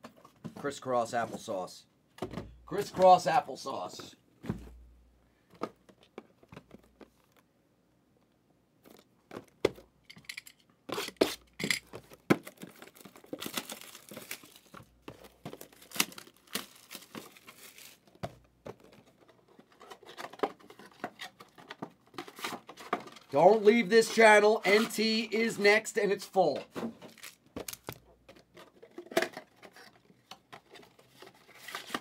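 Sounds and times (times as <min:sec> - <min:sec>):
cardboard and plastic tearing: 0:10.9 - 0:23.4, 0:26.9 - 0:32.0.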